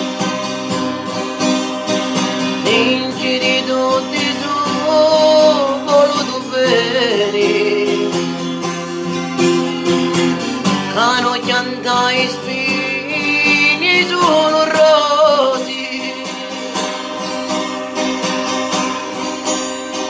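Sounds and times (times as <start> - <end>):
acoustic guitar strummed: 0.0 - 20.0
man singing: 2.4 - 8.6, 10.6 - 17.3.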